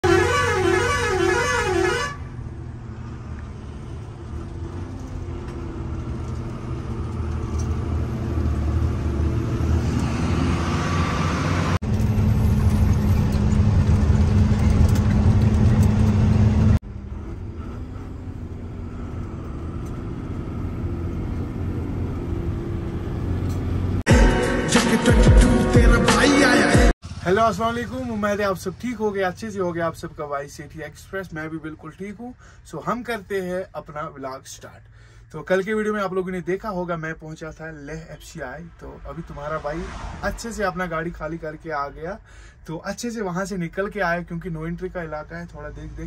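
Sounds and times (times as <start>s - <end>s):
truck engine rumble: 0.0s - 24.1s, 27.0s - 46.0s.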